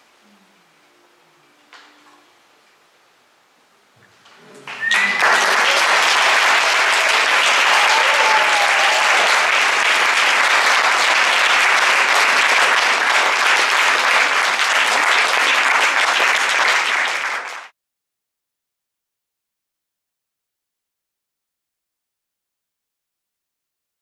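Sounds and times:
audience applause: 4.6s - 17.7s
whoops: 4.7s - 9.6s.

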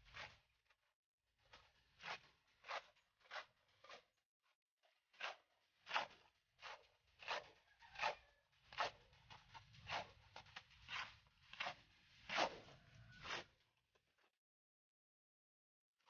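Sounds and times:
hand tool scraping wet cement: 0.0s - 0.6s, 1.4s - 4.2s, 4.8s - 13.6s.

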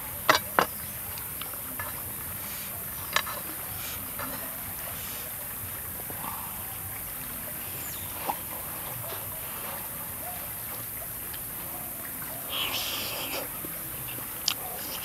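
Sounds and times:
steady background hiss: 0.0s - 15.0s.

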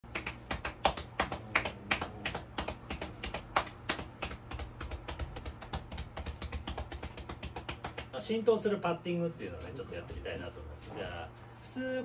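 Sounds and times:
hand patting on back: 0.1s - 8.2s.

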